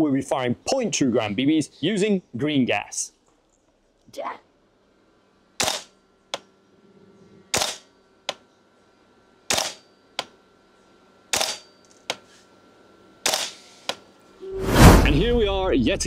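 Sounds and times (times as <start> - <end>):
airsoft rifle shots: 5.6 - 5.9, 7.5 - 7.9, 9.5 - 9.8, 11.3 - 11.6, 13.3 - 13.6.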